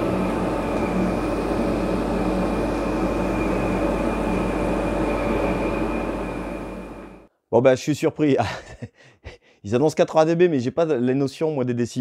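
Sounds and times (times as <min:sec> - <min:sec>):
dust collector fan air rushing: 0:00.0 - 0:07.3.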